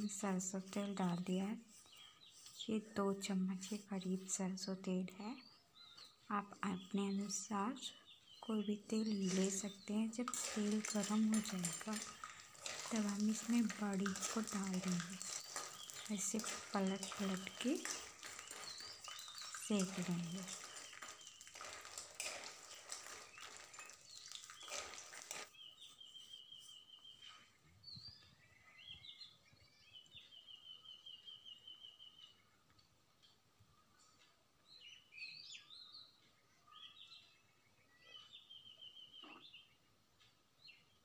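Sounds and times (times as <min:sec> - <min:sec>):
food frying in oil: 0:08.5 - 0:25.6
bird chirps: 0:25.5 - 0:32.6, 0:33.2 - 0:39.9.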